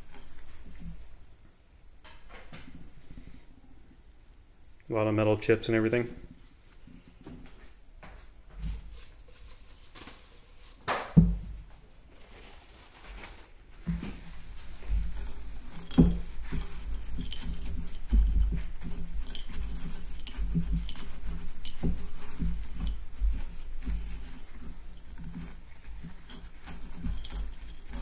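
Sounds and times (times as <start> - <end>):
steel balls clicking and rattling: 14.8 - 28.0.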